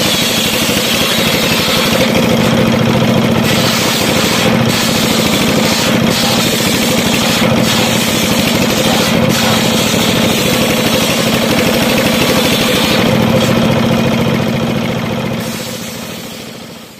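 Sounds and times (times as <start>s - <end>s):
circular saw blade cutting wood: 0.0s - 13.8s, 15.4s - 16.9s
diesel engine running: 0.0s - 16.9s.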